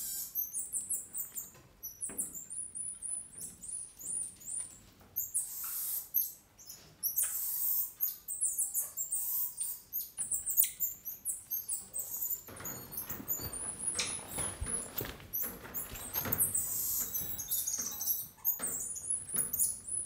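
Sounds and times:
monkeys chirping and squeaking: 0:00.0 - 0:20.0
rustling: 0:12.0 - 0:20.0.

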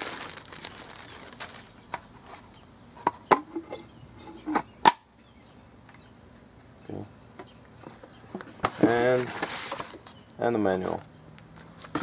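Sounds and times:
plastic bag rustling: 0:00.0 - 0:02.5, 0:08.7 - 0:10.1.

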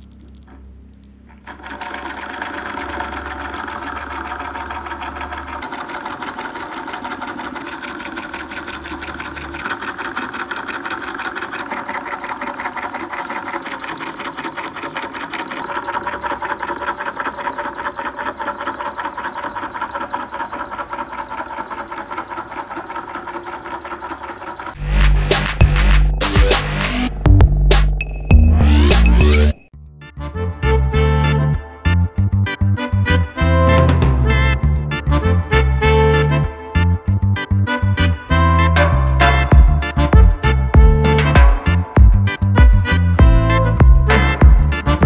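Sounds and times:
rapid mechanical clatter of flywheel rig: 0:01.4 - 0:27.1.

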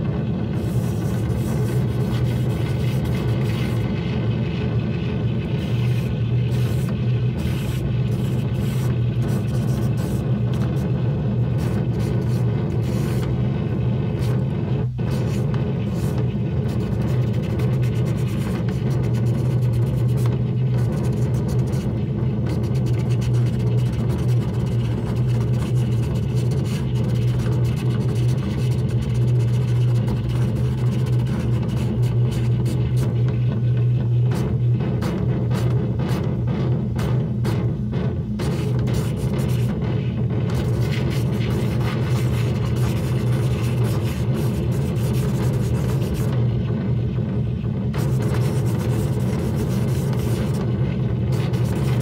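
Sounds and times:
loud low amplifier hum: 0:00.0 - 0:52.0
brush rasping on surface: 0:00.5 - 0:03.9, 0:05.4 - 0:13.3, 0:15.0 - 0:33.2, 0:38.4 - 0:39.8, 0:40.5 - 0:46.4, 0:48.0 - 0:52.0.

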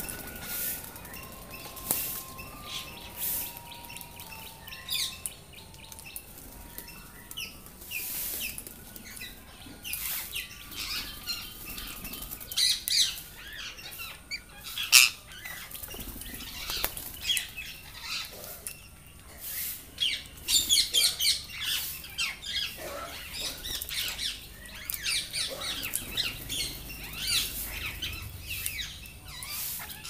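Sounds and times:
wings flapping: 0:00.0 - 0:04.4, 0:15.6 - 0:17.6
parakeets shrill calls: 0:00.0 - 0:18.7, 0:19.4 - 0:30.0.

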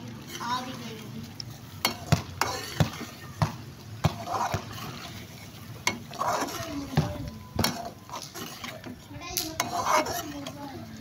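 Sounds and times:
chicken sizzling in a pot: 0:00.0 - 0:11.0
metal skimmer scraping a pot: 0:01.8 - 0:03.3, 0:04.0 - 0:10.6.

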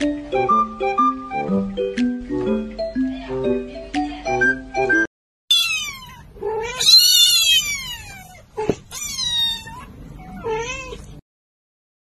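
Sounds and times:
kitten meowing: 0:05.5 - 0:11.1.

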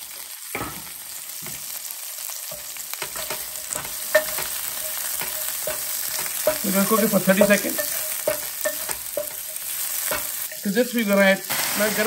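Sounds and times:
vegetables sizzling in frying pan: 0:00.0 - 0:12.0
spatula knocking on pan: 0:02.5 - 0:10.6
wooden spatula scraping pan: 0:03.0 - 0:10.7.

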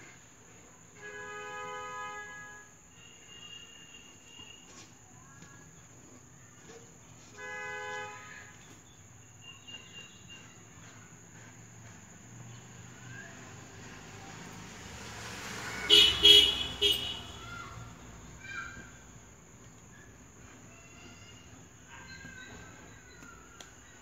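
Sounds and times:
horn honking: 0:15.4 - 0:17.7.

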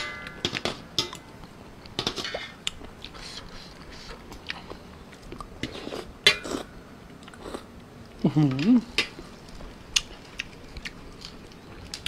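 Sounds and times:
wet chewing: 0:09.9 - 0:12.0.

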